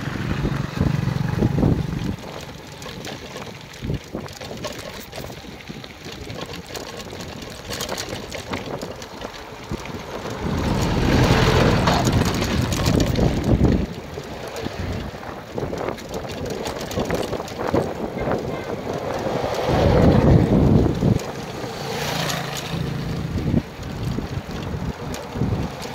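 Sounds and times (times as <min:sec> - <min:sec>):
truck passing: 0:00.0 - 0:04.0, 0:08.1 - 0:15.4, 0:17.9 - 0:25.9
bicycle rolling on gravel: 0:00.0 - 0:25.9
wind buffeting microphone: 0:00.0 - 0:25.9.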